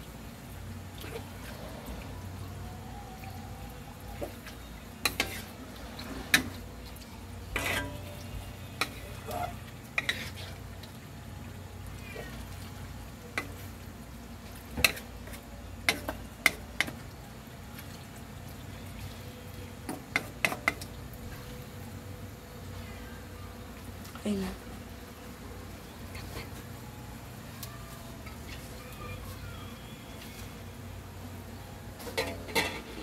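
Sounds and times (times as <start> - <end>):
faint frying sizzle: 0.0 - 33.0
scraping and squishing: 4.1 - 11.0, 25.9 - 26.9.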